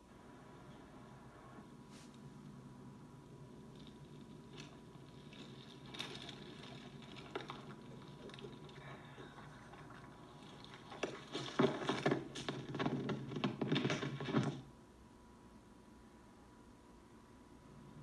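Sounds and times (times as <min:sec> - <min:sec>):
reeds and twigs rustling and crackling: 0:03.4 - 0:14.6.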